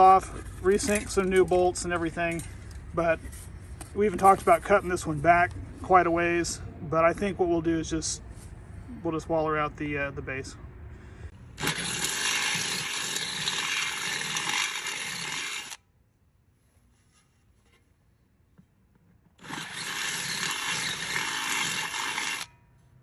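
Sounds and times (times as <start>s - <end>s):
cordless drill boring into metal: 11.6s - 15.8s, 19.4s - 22.5s.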